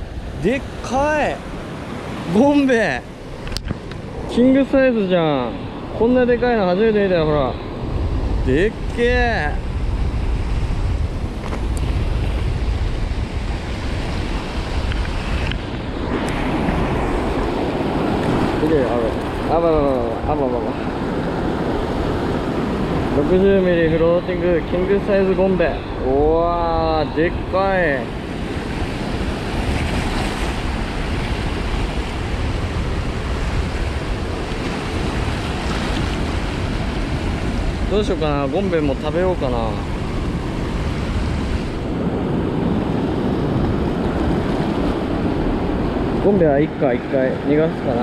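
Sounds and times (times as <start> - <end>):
sea waves: 0.0 - 48.0
surf washing: 0.0 - 48.0
wind buffeting microphone: 0.0 - 48.0.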